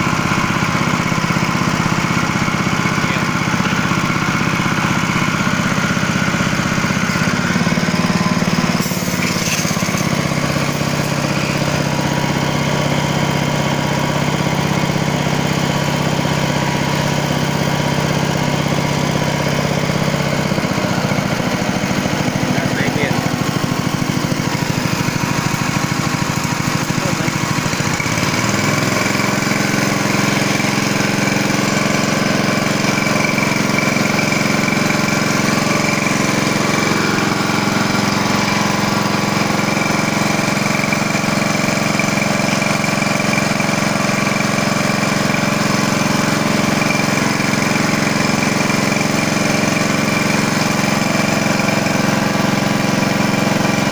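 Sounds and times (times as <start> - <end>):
petrol engine running: 0.0 - 53.9
high-pressure water jet hissing: 8.6 - 12.0.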